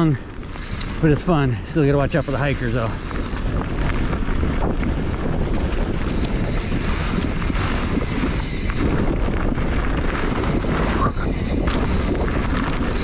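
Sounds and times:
bike tyre noise on dirt: 0.0 - 13.0
wind buffeting microphone: 0.0 - 13.0
bike knocks and rattles: 2.6 - 13.0.

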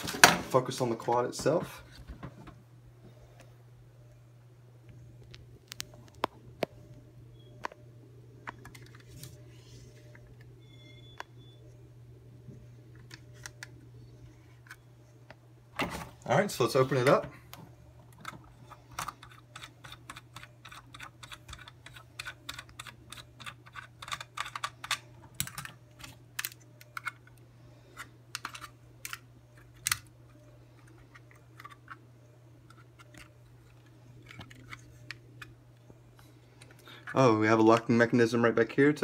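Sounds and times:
faint low hum: 0.0 - 39.0
hands clicking plastic parts: 18.1 - 27.3.

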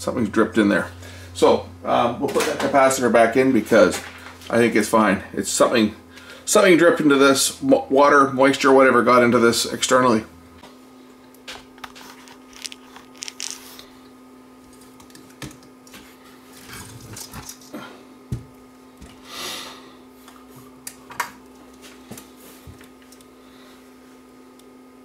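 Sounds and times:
steady low hum: 0.0 - 25.0
hands handling electronics: 11.8 - 13.8.

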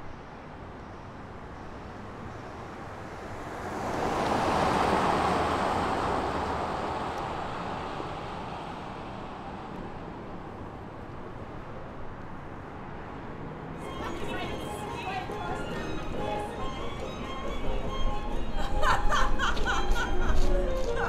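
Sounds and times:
vehicle passing by: 2.8 - 9.6.

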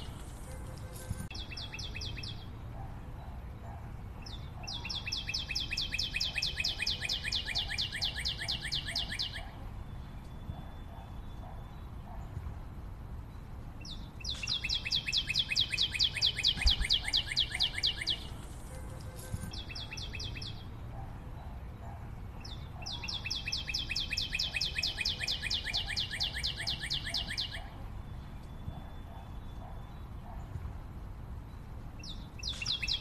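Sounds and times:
bird trilling: 4.2 - 9.6, 13.8 - 20.6, 22.4 - 27.8, 32.0 - 33.0.

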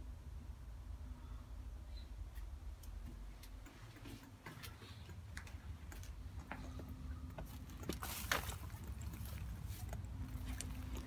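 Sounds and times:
footsteps crunching dry grass: 7.4 - 11.0.

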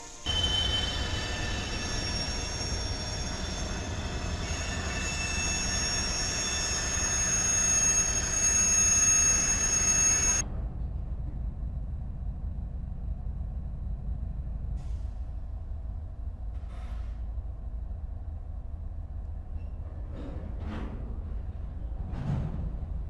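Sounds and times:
freight cars rumbling: 0.0 - 13.0
high-pitched wheel squeals: 0.1 - 10.4.

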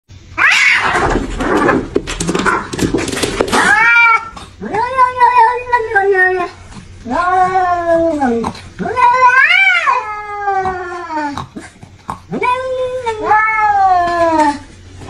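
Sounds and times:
cats yowling: 0.4 - 1.2, 3.5 - 11.6, 12.3 - 14.7
cats scuffling and hissing: 0.4 - 15.0.

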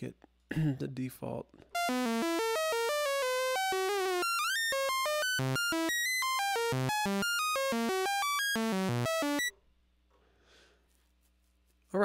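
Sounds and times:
synthesizer random short notes: 1.8 - 9.5.

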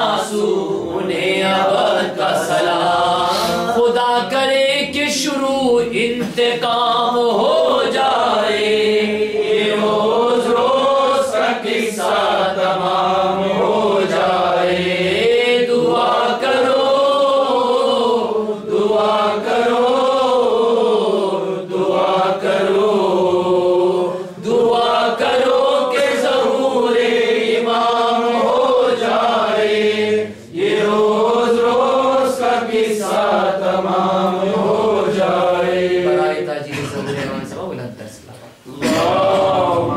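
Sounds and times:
man chanting a lament: 0.0 - 8.7.

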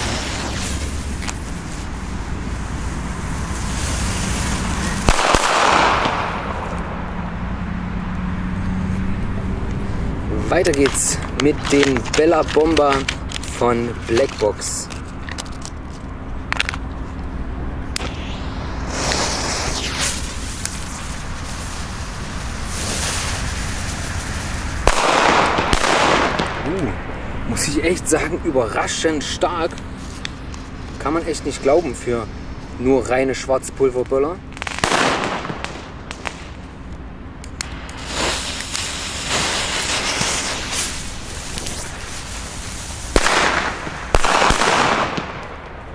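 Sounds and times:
fuse hissing: 0.0 - 6.9, 18.0 - 24.8, 37.6 - 44.1.

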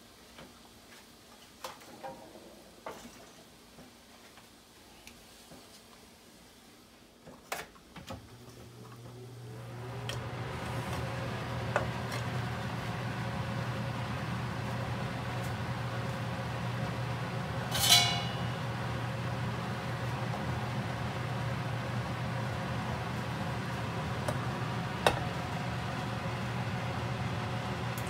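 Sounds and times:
sharp metallic clink: 17.7 - 18.6.

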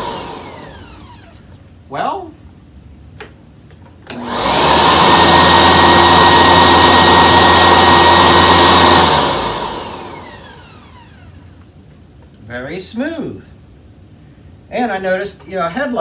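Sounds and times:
vacuum cleaner whining: 0.0 - 1.6, 4.1 - 11.7.

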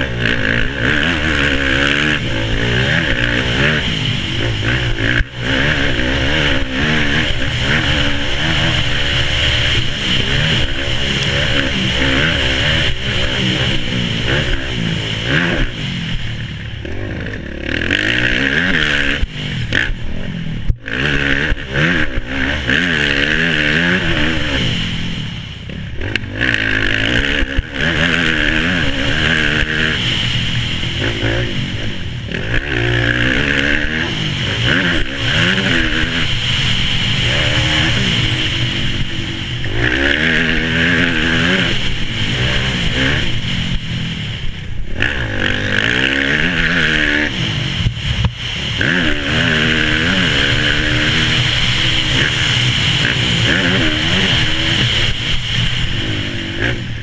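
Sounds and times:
dirt bike engine revving: 0.0 - 57.0
track noise: 0.0 - 57.0
wind noise: 33.8 - 57.0.

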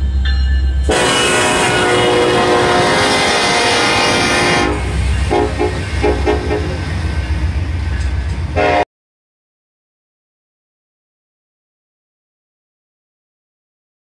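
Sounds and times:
locomotive engines rumbling: 0.0 - 8.8
locomotive air horn: 0.9 - 6.8, 8.6 - 8.9.

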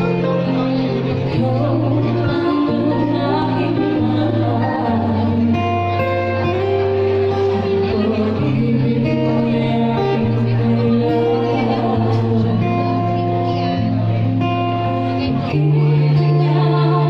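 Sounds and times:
guitar: 0.0 - 17.0
low bass line: 0.0 - 17.0
women singing together: 1.2 - 6.1, 7.7 - 13.5, 15.3 - 17.0.

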